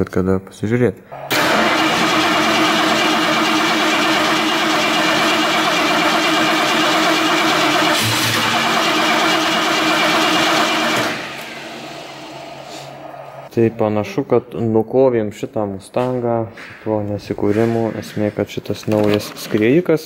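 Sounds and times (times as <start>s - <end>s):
car engine running: 1.3s - 13.4s.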